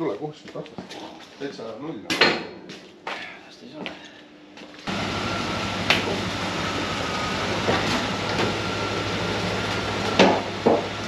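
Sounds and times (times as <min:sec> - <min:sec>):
engine idling: 0:04.9 - 0:11.0.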